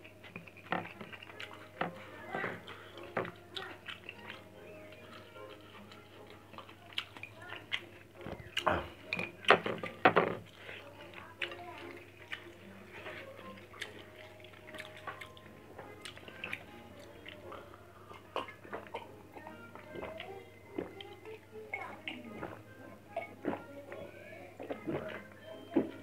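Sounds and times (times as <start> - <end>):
chewing: 0.0 - 26.0
fingers and food on ceramic plate: 0.0 - 26.0.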